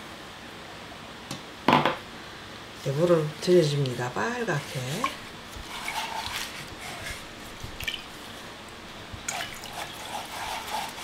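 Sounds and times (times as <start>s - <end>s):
soft water splashing and dripping: 7.6s - 8.3s, 9.2s - 10.9s.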